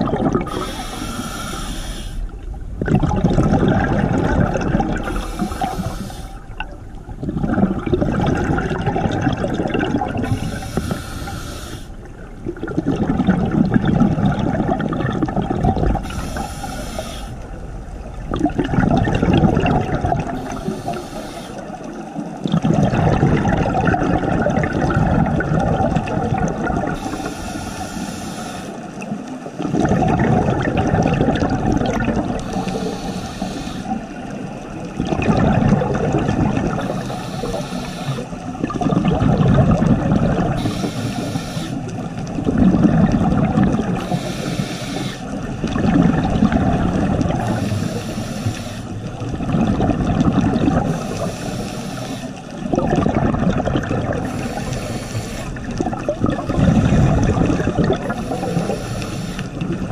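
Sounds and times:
exhaled bubbles rushing: 0.0 - 1.6, 2.2 - 28.1, 28.8 - 59.9
regulator inhale hiss: 0.4 - 2.4, 5.0 - 6.6, 10.2 - 12.1, 16.0 - 17.5, 20.3 - 22.0, 27.0 - 29.0, 32.4 - 34.4, 36.8 - 38.4, 40.6 - 41.9, 44.0 - 45.4, 47.4 - 49.3, 50.8 - 52.6, 54.2 - 55.7, 58.1 - 59.6.

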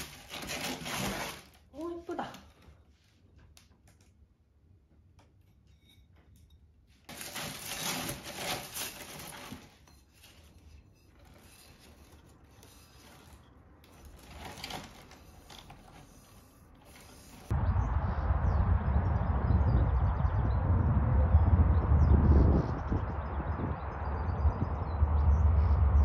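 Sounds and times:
packing paper rustling and crinkling: 0.0 - 2.7, 7.1 - 17.5.

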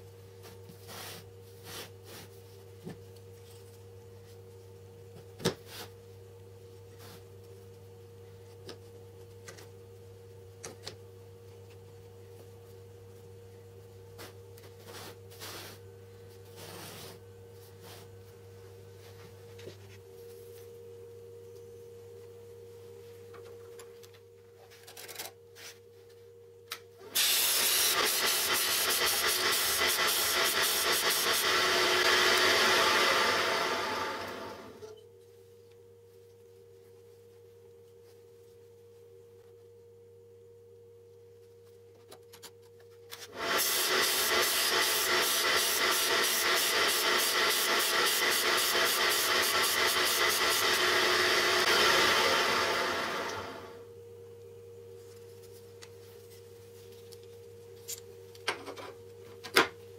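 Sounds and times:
faint steady hum: 0.0 - 27.2, 31.3 - 43.4, 51.6 - 59.9
drill bit grinding on disc sander: 43.3 - 53.7.

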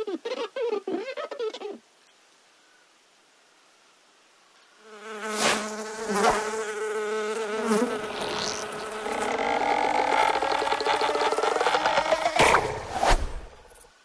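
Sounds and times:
fly buzzing: 4.8 - 13.9.

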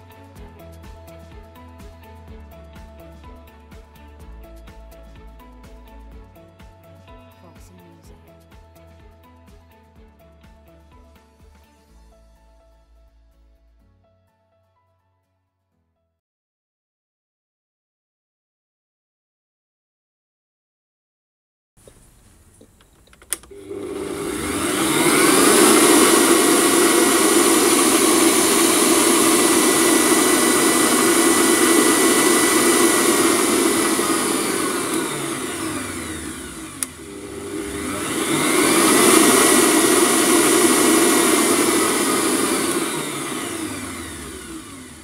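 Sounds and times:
stand mixer motor whirring: 23.5 - 45.0
whisk spinning in steel bowl: 23.5 - 45.0.

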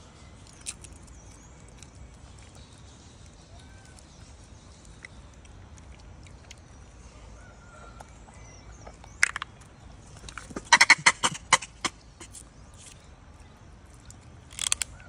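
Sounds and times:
loud sharp crackling clicks: 14.5 - 15.0.

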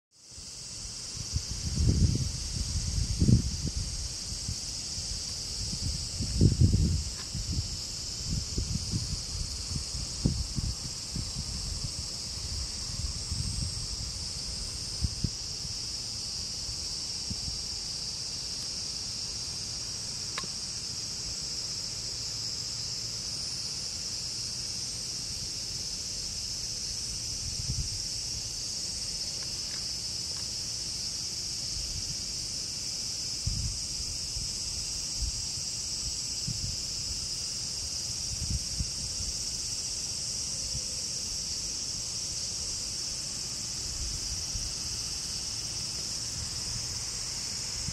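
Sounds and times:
insects chorus: 0.1 - 47.9.

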